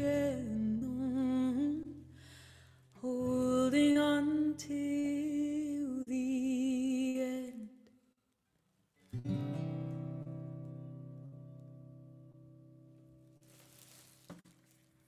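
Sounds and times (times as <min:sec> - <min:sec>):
woman singing wordless notes: 0:00.0 - 0:02.0, 0:03.0 - 0:07.8
acoustic guitar: 0:00.0 - 0:07.7, 0:08.9 - 0:15.0.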